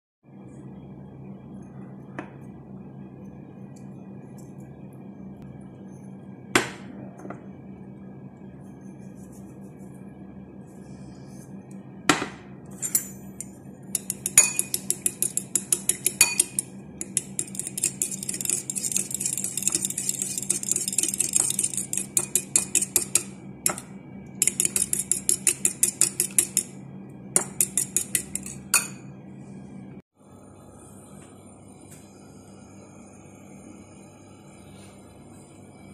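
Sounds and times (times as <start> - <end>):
spoon beating eggs in a bowl: 12.9 - 29.0.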